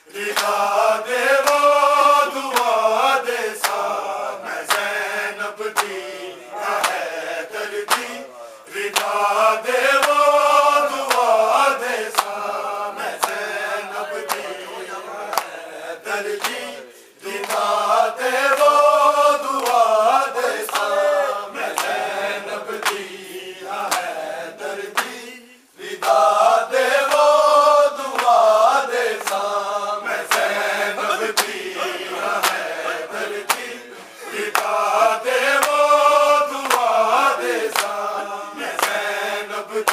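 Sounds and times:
men chanting a lament: 0.0 - 39.9
hands slapping chests: 0.2 - 0.7, 2.5 - 2.8, 3.6 - 4.0, 4.6 - 4.9, 6.8 - 7.1, 7.8 - 8.2, 8.8 - 9.2, 12.1 - 12.4, 13.2 - 13.5, 15.3 - 15.6, 17.4 - 17.7, 20.6 - 21.0, 23.8 - 24.1, 28.1 - 28.4, 29.2 - 29.5, 30.3 - 30.6, 32.4 - 32.7, 33.4 - 33.7, 34.4 - 34.9, 35.6 - 35.8, 37.7 - 38.0.

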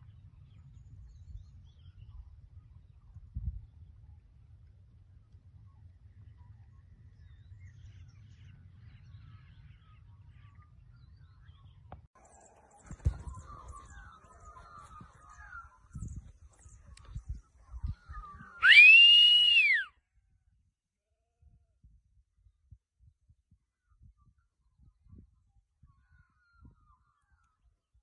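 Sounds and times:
loud rising whistle: 18.6 - 19.9.

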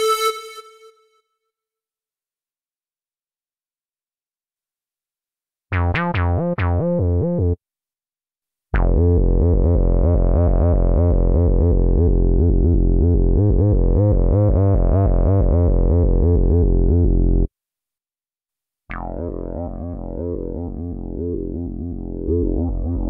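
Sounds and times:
synthesizer bass notes: 8.8 - 17.5, 18.9 - 23.0.

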